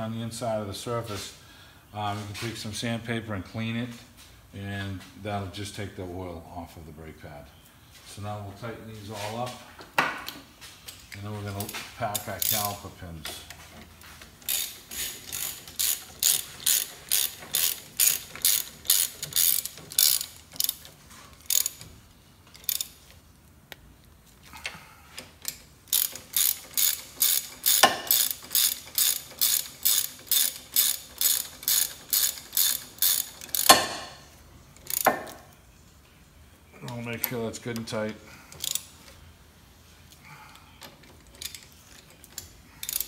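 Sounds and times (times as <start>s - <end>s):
socket ratchet clicking: 14.4s - 21.9s, 22.5s - 23.0s, 25.4s - 34.0s, 41.2s - 43.0s.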